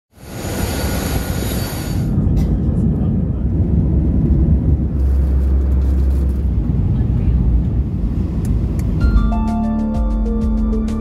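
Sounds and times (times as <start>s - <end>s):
jet engine hiss: 0.2s - 2.2s
low rumble: 1.3s - 9.5s.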